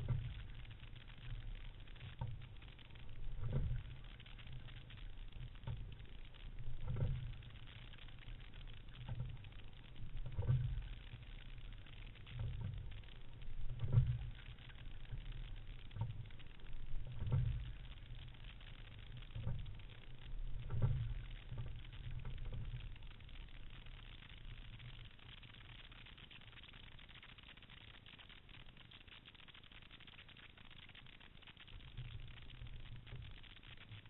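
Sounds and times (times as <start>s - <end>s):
muffled rush of water and wind: 0.0s - 34.0s.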